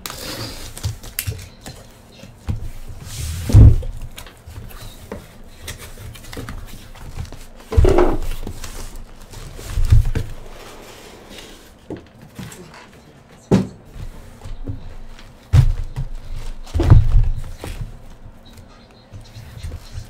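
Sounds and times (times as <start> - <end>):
cardboard flaps rustling and scraping: 2.4 - 12.7
dull thumps of boxes: 3.4 - 4.1, 7.2 - 8.9, 13.5 - 18.0.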